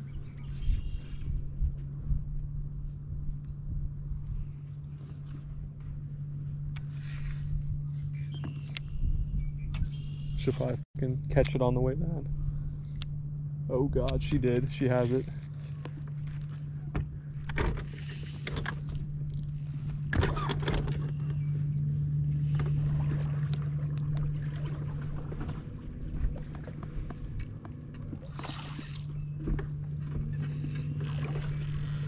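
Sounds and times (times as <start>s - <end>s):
boat motor hum: 0.0s - 32.0s
fish splashing: 22.5s - 26.8s.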